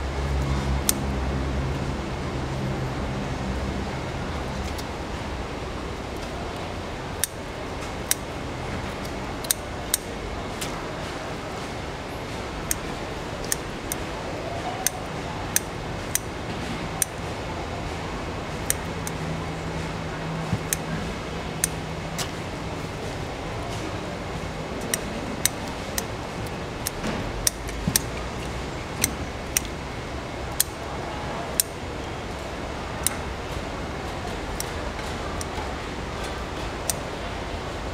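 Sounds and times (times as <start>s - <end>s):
shears snipping shells: 18.5s - 30.8s.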